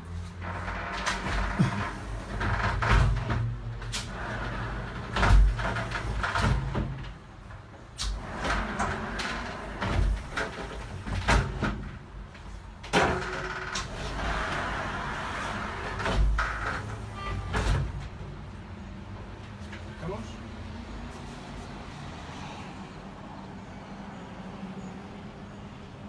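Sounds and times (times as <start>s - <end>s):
panels rolling along track: 0.4s - 7.1s, 8.1s - 11.9s, 12.9s - 18.3s.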